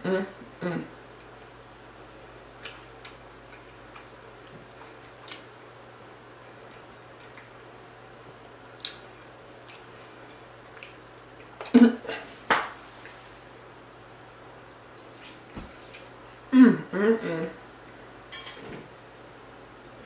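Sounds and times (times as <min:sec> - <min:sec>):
chewing: 0:01.0 - 0:08.0, 0:08.7 - 0:11.8, 0:14.9 - 0:16.2.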